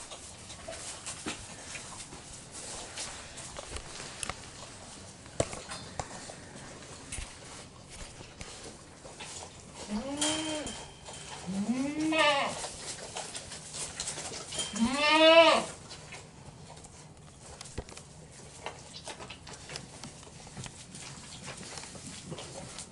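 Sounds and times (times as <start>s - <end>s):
goat kid bleating: 9.8s - 10.8s, 11.4s - 12.7s, 14.5s - 15.8s.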